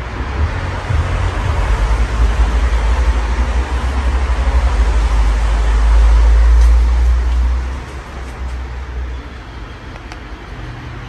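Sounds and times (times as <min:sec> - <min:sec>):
wind buffeting microphone: 0:00.0 - 0:08.8.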